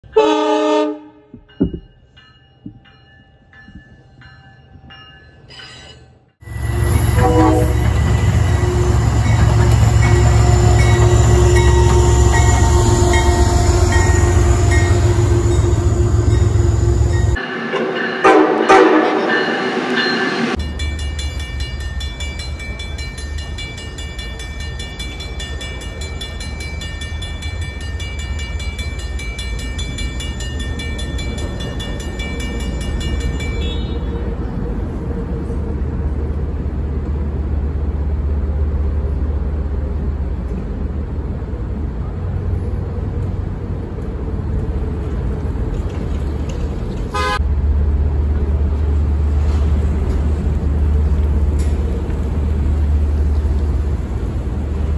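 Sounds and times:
crossing warning bell ringing: 0.0 - 34.6.

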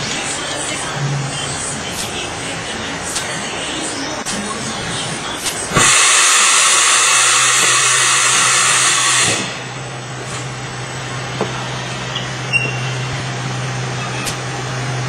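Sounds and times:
printing machine humming: 0.0 - 15.0
loud hiss: 5.3 - 11.9.

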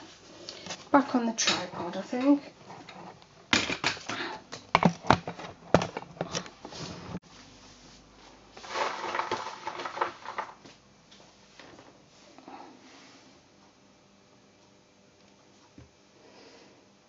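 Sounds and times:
rustling: 5.3 - 10.7.

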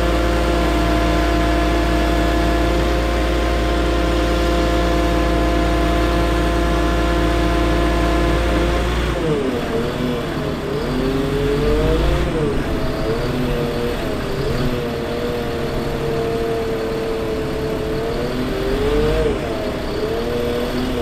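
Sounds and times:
diesel engine droning: 0.0 - 21.0
hydraulic whine: 0.0 - 21.0
deep rumble: 10.8 - 18.2.

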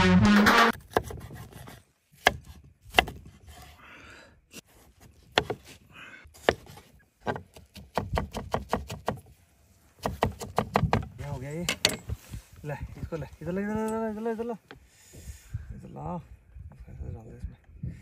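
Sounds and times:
knife chopping on wooden board: 0.8 - 3.3, 5.3 - 5.7, 6.4 - 9.2, 10.0 - 11.1.

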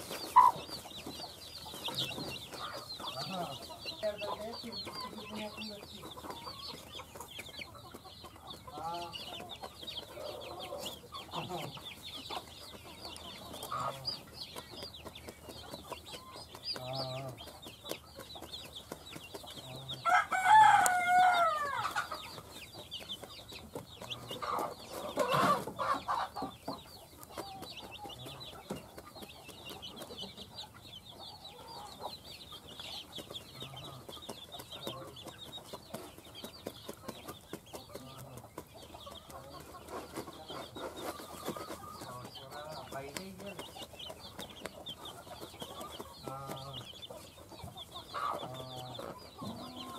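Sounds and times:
chicks peeping: 0.0 - 49.9
hen clucking softly: 0.1 - 14.9, 37.9 - 49.9
rooster crowing: 20.0 - 22.0.

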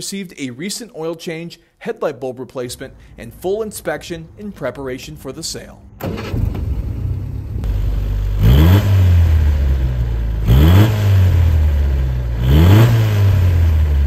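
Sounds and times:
car engine idling and revving: 6.0 - 14.0.

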